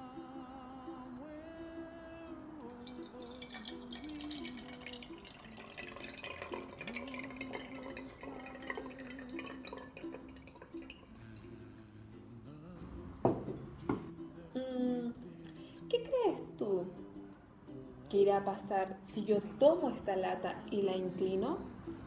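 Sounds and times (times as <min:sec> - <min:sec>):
soft background music: 0:00.0 - 0:22.0
water pouring into a can: 0:02.6 - 0:11.2.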